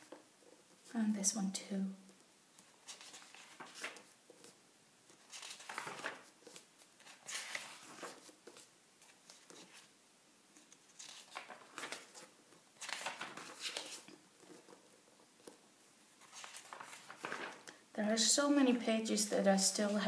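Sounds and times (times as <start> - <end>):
book pages turning: 2.6 - 9.9, 10.5 - 15.6, 16.2 - 17.8.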